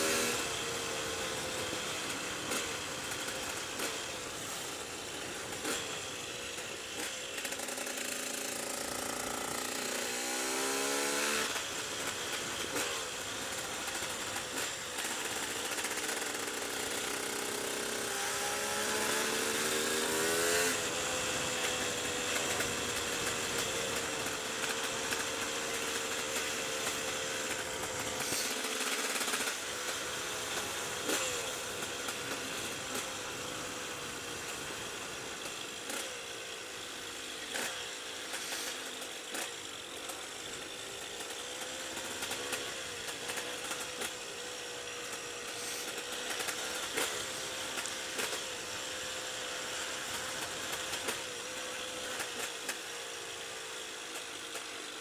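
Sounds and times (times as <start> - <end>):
two-stroke motorcycle engine revving: 0.0 - 55.0
steady hiss: 19.0 - 55.0.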